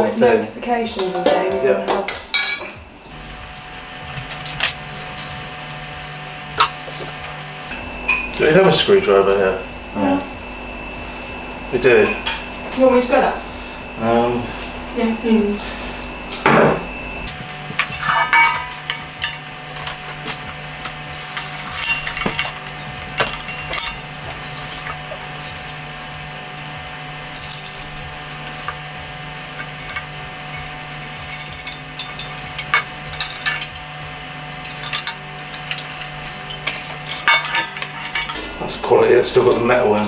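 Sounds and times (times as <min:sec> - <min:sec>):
screwdriver work: 0:17.3 - 0:34.0, 0:34.6 - 0:38.4.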